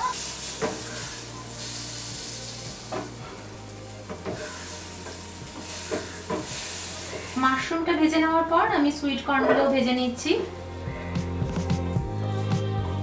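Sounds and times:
mushrooms sizzling in butter: 0.0 - 8.2.

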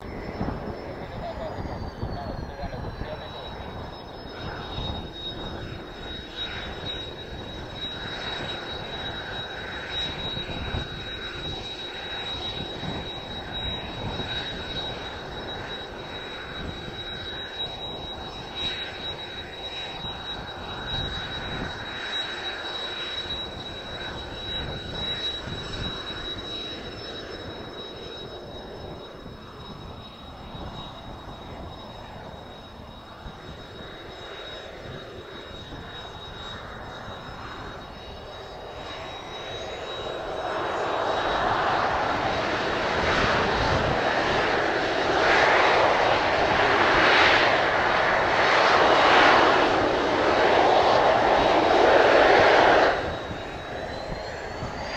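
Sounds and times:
wind buffeting microphone: 0.0 - 17.4, 40.3 - 54.9
jet engines whining: 0.0 - 54.9.

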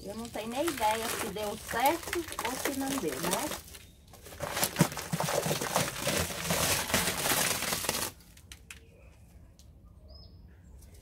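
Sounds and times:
plastic sheeting crinkling: 0.0 - 8.6.

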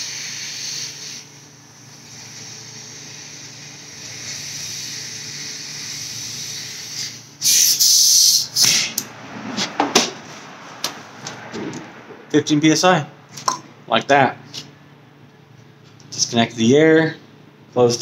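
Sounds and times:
compressed air hissing: 0.0 - 9.1
loud rush of air: 6.8 - 13.9.

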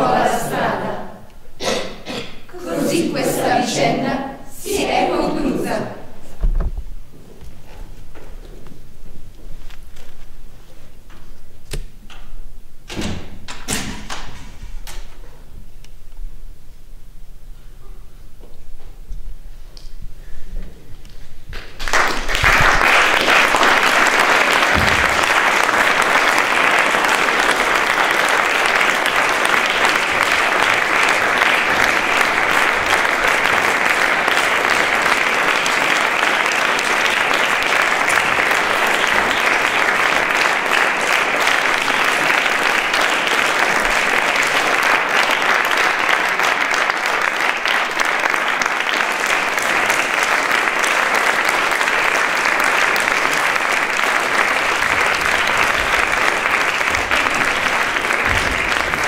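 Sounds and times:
audience applauding: 0.0 - 1.3, 2.6 - 6.2, 21.6 - 59.0.

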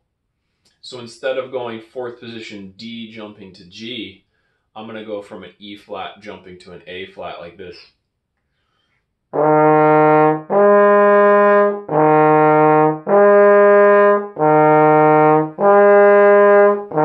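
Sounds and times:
trombone sustained notes: 9.4 - 17.0.

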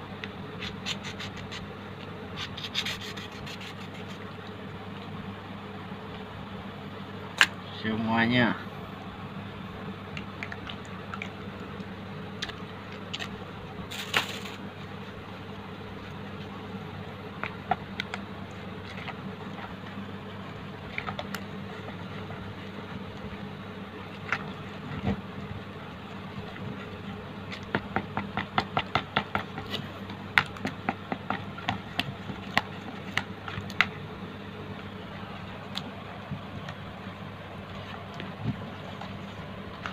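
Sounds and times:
steady low hum: 0.0 - 39.9
spatula stirring wet mixture: 2.4 - 4.6, 14.7 - 39.9.

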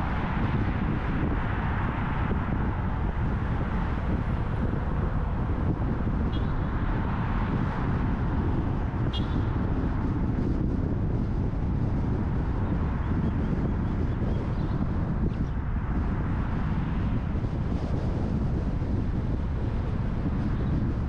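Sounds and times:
car tyre and wind rumble: 0.0 - 21.0.

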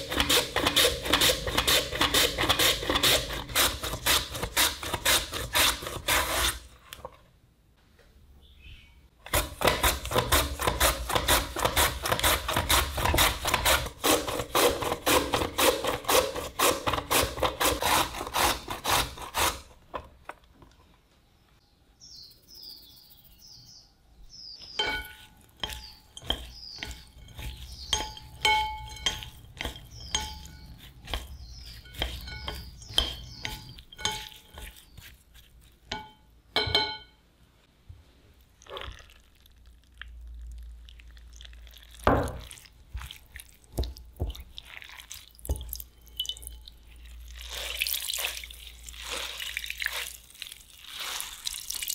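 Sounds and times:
peeling strokes on potatoes: 0.0 - 7.0, 9.3 - 19.8, 24.9 - 36.0, 46.9 - 51.9
utensils clinking on dishes: 24.8 - 35.1.

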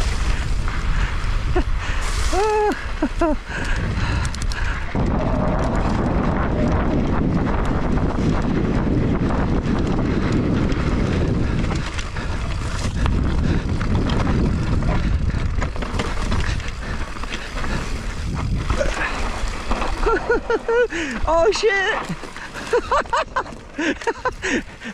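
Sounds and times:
bike knocking and rattling: 0.0 - 24.9
bike tyres rolling on dirt: 0.0 - 24.9
wind buffeting microphone: 0.0 - 24.9.

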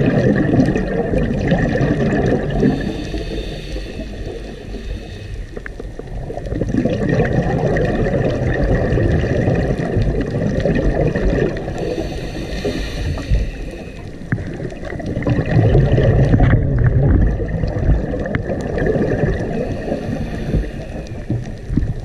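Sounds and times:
diver's bubbles gurgling underwater: 0.0 - 22.0.

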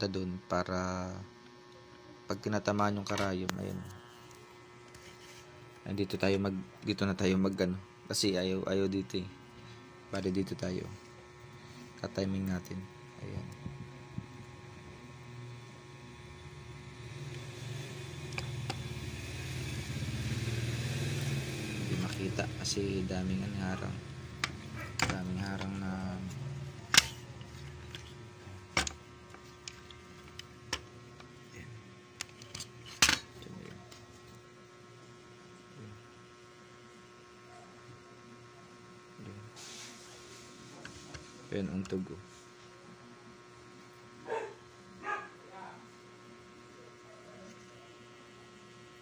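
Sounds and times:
faint electrical hum: 0.0 - 49.0
sewing machine motor humming: 14.4 - 30.5.

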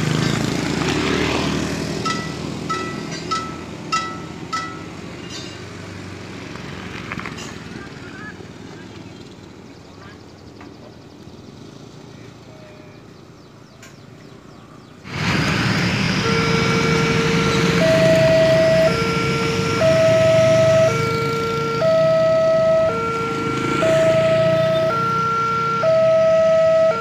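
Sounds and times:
passing motorcycles: 0.0 - 27.0
level crossing two-tone alarm: 16.2 - 27.0.

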